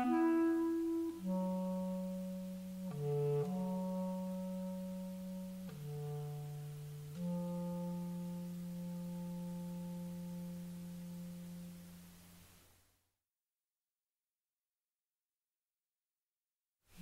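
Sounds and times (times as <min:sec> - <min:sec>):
clarinet long low notes: 0:00.0 - 0:12.5.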